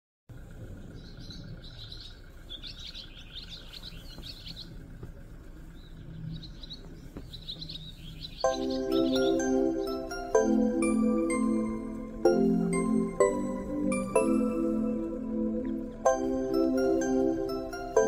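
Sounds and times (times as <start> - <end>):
small birds chirping: 0.3 - 18.0
background music: 8.5 - 18.0.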